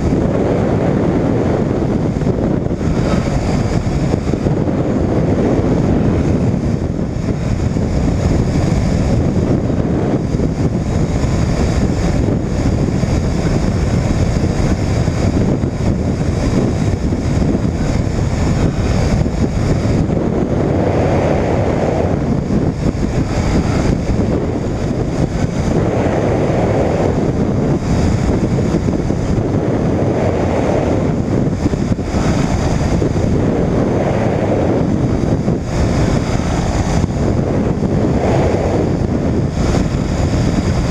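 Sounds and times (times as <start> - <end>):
engine and propeller running: 0.0 - 40.9
wind rushing over microphone: 0.0 - 40.9.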